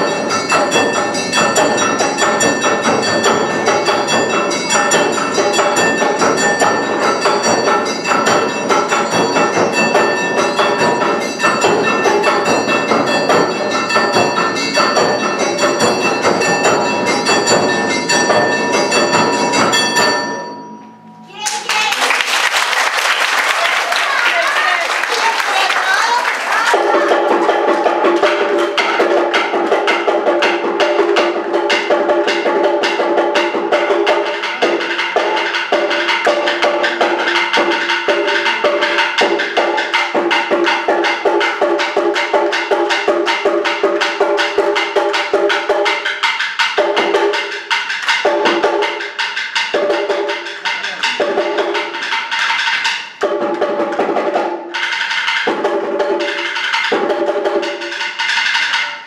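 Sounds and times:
fast percussion drum beat: 0:00.0 - 0:20.6, 0:21.4 - 0:59.0
held melodic notes: 0:00.0 - 0:21.7.

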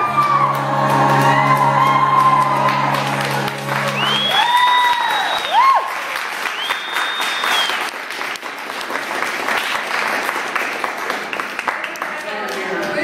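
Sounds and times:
high-pitched whoops: 0:00.0 - 0:07.8
audience clapping and cheering: 0:00.0 - 0:13.0.

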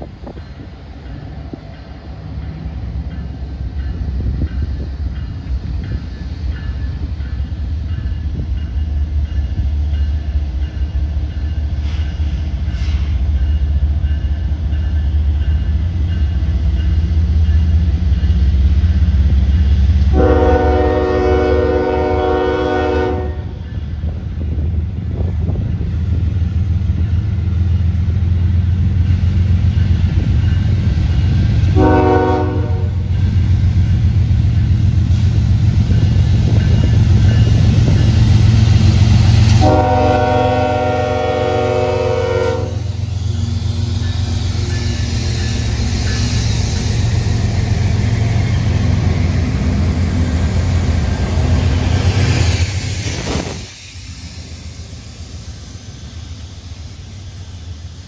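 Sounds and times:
train rumbling past: 0:00.0 - 0:58.0
locomotive horn blast: 0:20.1 - 0:23.5, 0:31.7 - 0:33.0, 0:39.5 - 0:42.8.

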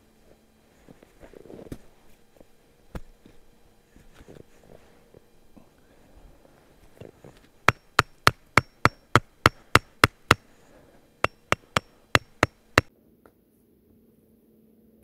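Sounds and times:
hammer striking brick: 0:07.7 - 0:10.4, 0:11.2 - 0:12.9.

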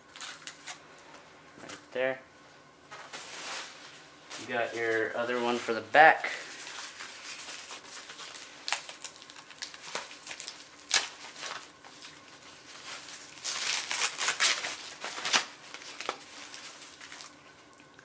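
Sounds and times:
plastic packaging crinkling: 0:00.0 - 0:01.1, 0:06.3 - 0:18.0.

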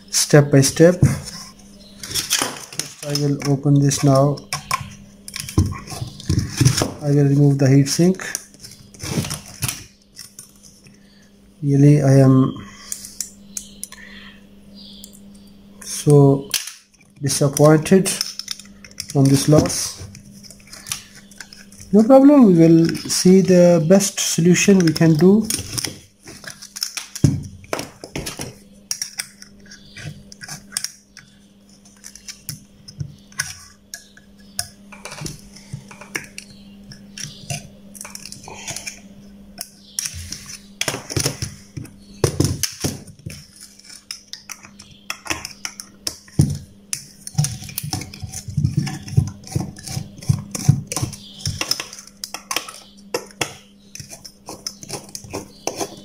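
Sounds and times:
faint steady hum: 0:00.0 - 0:56.0.

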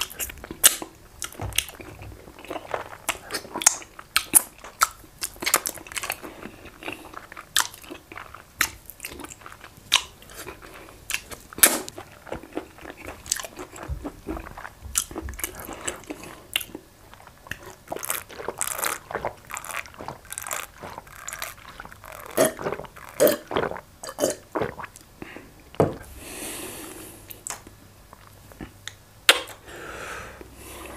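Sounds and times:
lip smacks: 0:00.0 - 0:06.2, 0:27.3 - 0:29.6
sips and swallows: 0:10.2 - 0:25.4
breathy exhale: 0:29.6 - 0:30.9.

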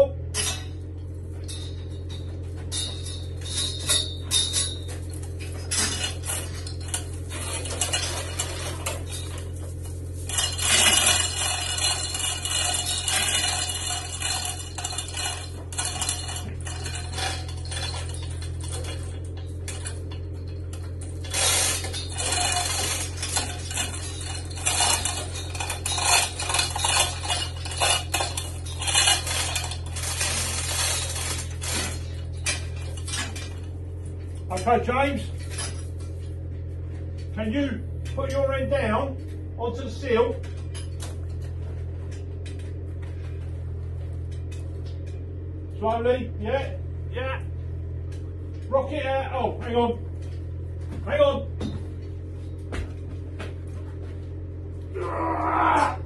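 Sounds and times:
steady low hum: 0:00.0 - 0:56.0
hoist chain rattling: 0:01.4 - 0:33.7.

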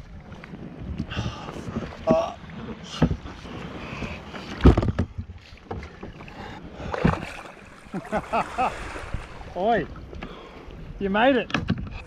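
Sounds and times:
wind rumbling on microphone: 0:00.0 - 0:12.0
knocks against kayak hull: 0:02.9 - 0:03.3, 0:04.5 - 0:05.9, 0:07.0 - 0:07.4.

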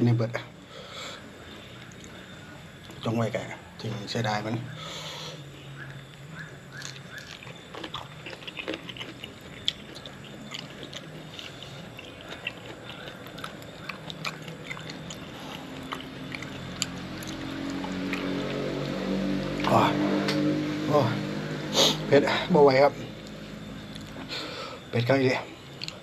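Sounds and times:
man chewing: 0:05.8 - 0:19.7, 0:23.2 - 0:24.8, 0:25.7 - 0:26.0.

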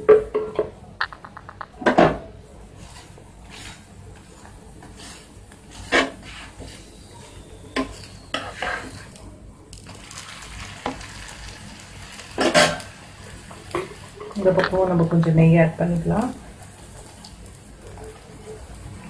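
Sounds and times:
oil sizzling faintly: 0:00.0 - 0:19.0
spatula scraping a griddle: 0:02.7 - 0:09.2, 0:12.1 - 0:13.0.

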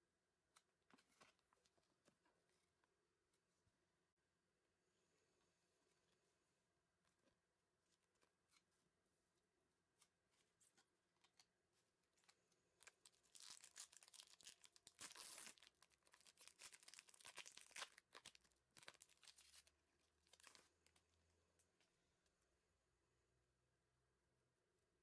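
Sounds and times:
plastic wrapper crinkling: 0:12.8 - 0:21.0
plastic wrapper tearing: 0:12.8 - 0:21.0.

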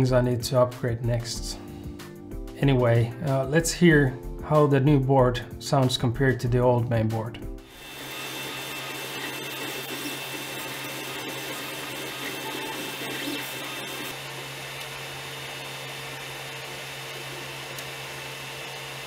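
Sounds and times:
stepper motors whirring: 0:07.7 - 0:14.2.

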